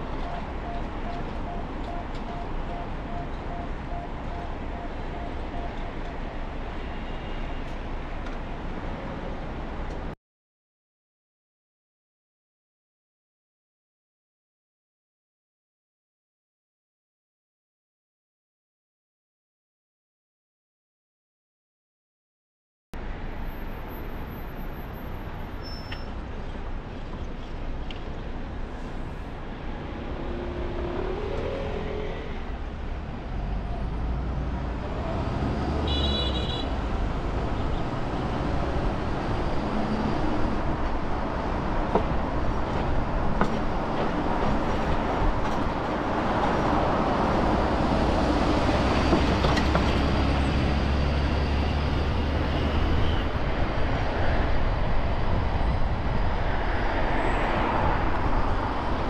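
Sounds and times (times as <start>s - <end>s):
rumble of tyres and engines: 0.0s - 10.2s, 23.0s - 59.0s.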